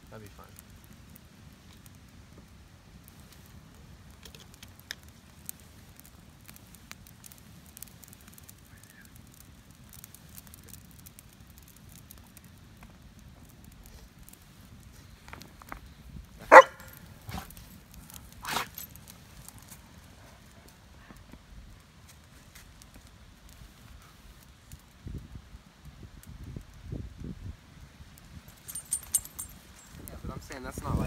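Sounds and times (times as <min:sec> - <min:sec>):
campfire crackling: 0:00.0 - 0:31.0
dog barking: 0:16.5 - 0:17.4.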